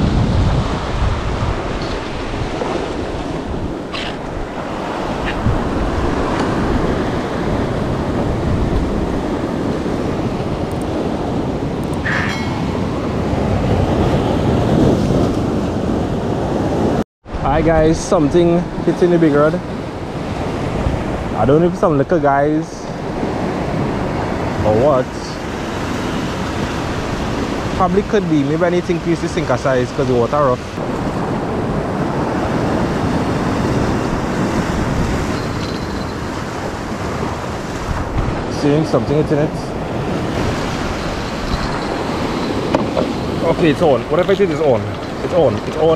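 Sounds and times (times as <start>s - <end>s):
wind buffeting microphone: 0.0s - 45.9s
brief tone: 12.0s - 12.9s
surf washing over rocks: 16.8s - 45.9s.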